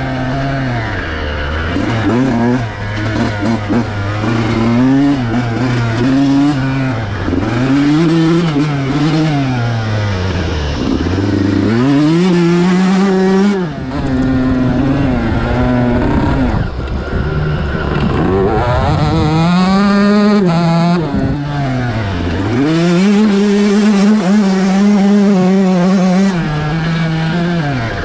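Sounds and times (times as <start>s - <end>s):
two-stroke engine revving: 0.0s - 28.0s.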